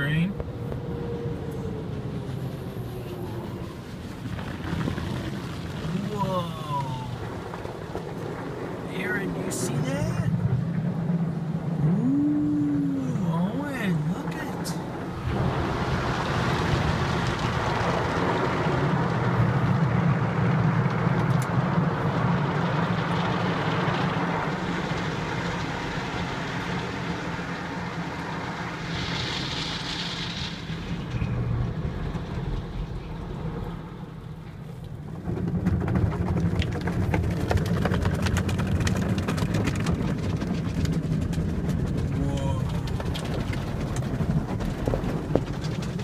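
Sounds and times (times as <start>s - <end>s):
car wash machinery hum: 0.0s - 46.0s
car wash brushes and water spray: 13.0s - 46.0s.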